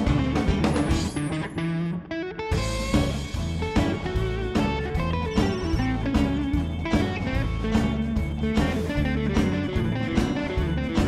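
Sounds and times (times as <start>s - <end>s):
guitar-driven rock music: 0.0s - 11.0s.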